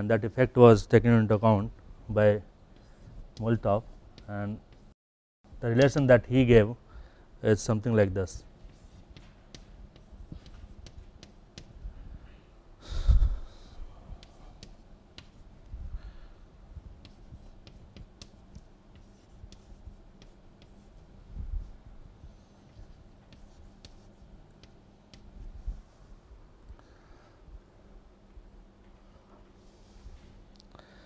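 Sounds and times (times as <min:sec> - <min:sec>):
chalk tapping on blackboard: 0:02.8 - 0:04.9, 0:08.5 - 0:11.8, 0:14.2 - 0:15.5, 0:17.0 - 0:21.0, 0:22.6 - 0:25.4.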